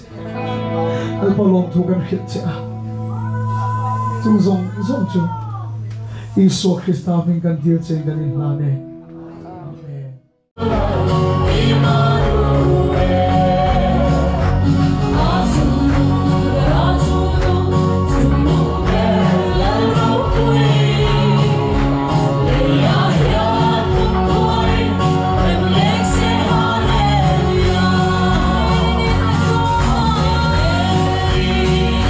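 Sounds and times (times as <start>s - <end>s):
group singing gospel song: 10.6s - 32.0s
instrumental accompaniment with beat: 10.6s - 32.0s.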